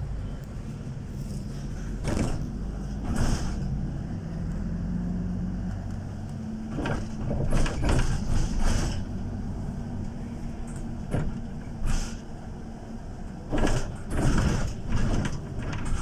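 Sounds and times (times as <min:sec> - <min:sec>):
bus engine drone: 0:00.0 - 0:16.0
bus body rattling: 0:00.8 - 0:05.2, 0:06.0 - 0:16.0.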